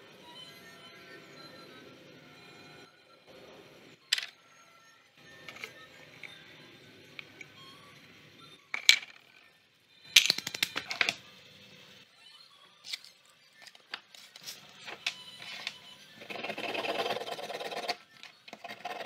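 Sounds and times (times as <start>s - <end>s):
wooden pieces clattering on workbench: 8.8s - 9.2s
rasping scrape: 16.2s - 19.0s.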